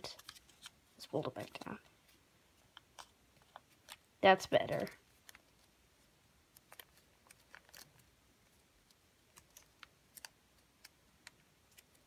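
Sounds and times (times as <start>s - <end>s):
paper crackling as folded: 0.0s - 1.8s, 6.5s - 12.0s.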